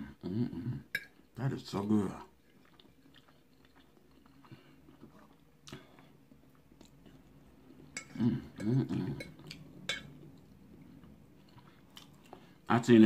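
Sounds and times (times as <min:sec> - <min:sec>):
person chewing food: 0:02.3 - 0:12.6.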